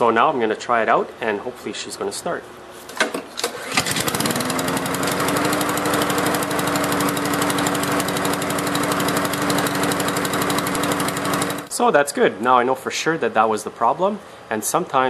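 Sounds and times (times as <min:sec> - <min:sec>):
lawnmower engine starting and running: 0:03.0 - 0:11.7.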